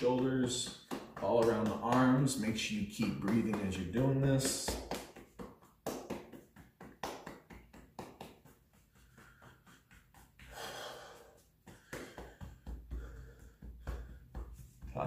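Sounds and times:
hand patting through sleeve: 0:00.0 - 0:15.0
breath: 0:10.5 - 0:14.3.

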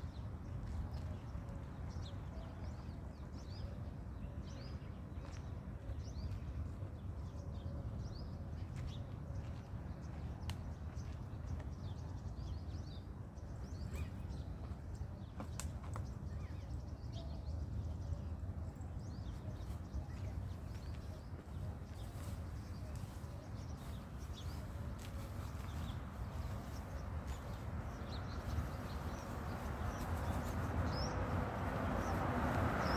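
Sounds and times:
small birds chirping: 0:18.8 - 0:32.9.

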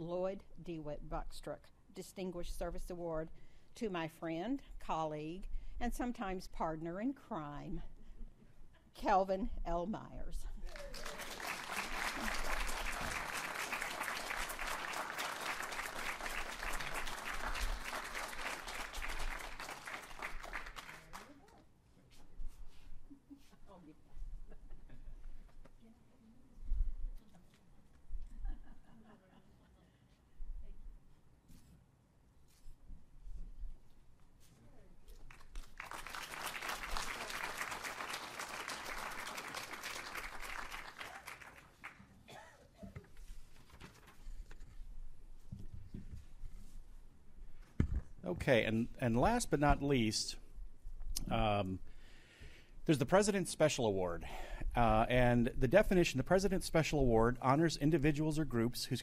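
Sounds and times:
audience applauding: 0:10.6 - 0:21.4, 0:35.3 - 0:42.0.

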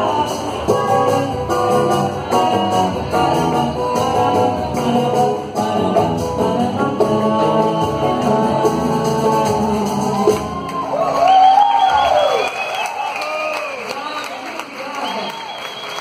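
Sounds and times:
woman singing into a microphone: 0:00.0 - 0:10.5
band playing: 0:00.0 - 0:11.3.

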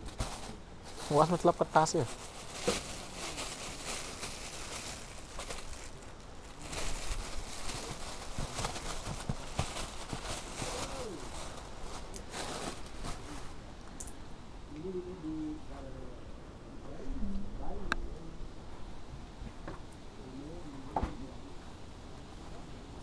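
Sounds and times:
rustles and clicks of handling: 0:00.0 - 0:14.2
outdoor background noise: 0:00.0 - 0:23.0.

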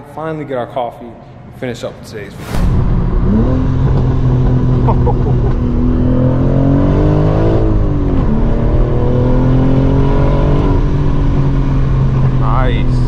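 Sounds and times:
car engine accelerating: 0:02.6 - 0:13.0.

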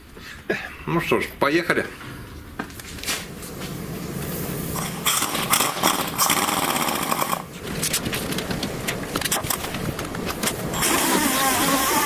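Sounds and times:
orbital sander on metal: 0:10.7 - 0:12.0.

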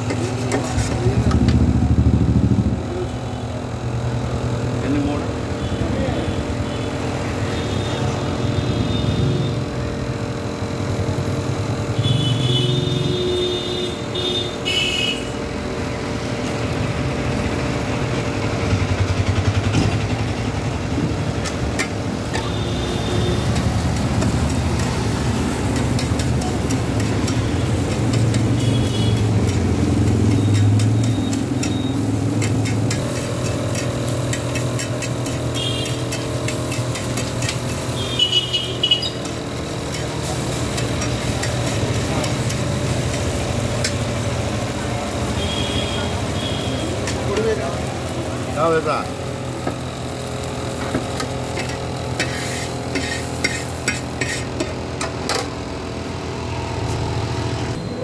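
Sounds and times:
road traffic engines rumbling: 0:00.0 - 0:58.0
metal spatula clattering on griddle: 0:23.6 - 0:38.0, 0:38.9 - 0:44.0, 0:50.9 - 0:55.5.

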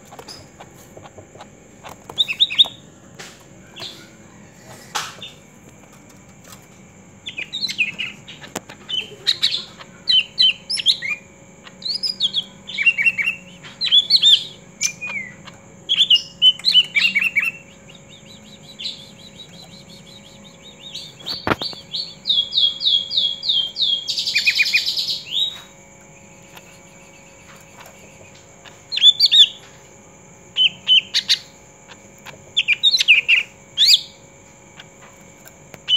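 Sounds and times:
bird chirping and whistling: 0:02.2 - 0:02.8, 0:07.2 - 0:25.7, 0:26.4 - 0:29.6, 0:30.6 - 0:31.5, 0:32.6 - 0:34.2.

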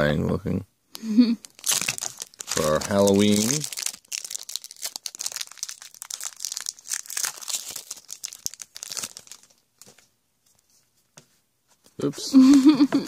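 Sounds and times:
foil wrapper tearing and crinkling: 0:01.4 - 0:09.9.

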